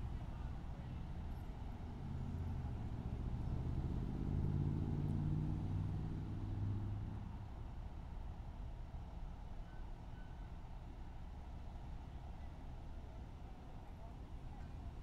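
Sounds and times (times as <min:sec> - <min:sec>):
vehicle engine passing by: 0:01.8 - 0:07.4.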